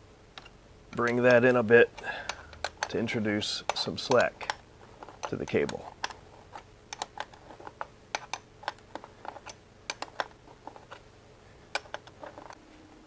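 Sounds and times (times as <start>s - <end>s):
wrench clicking on metal: 0.4s - 6.2s, 6.9s - 11.0s.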